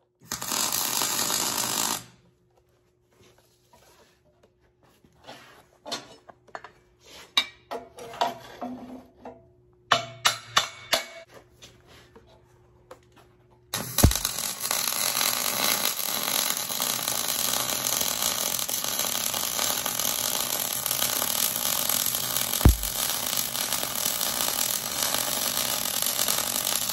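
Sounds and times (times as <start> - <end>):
welding arc sizzling: 0.3 - 2.1, 13.8 - 26.9.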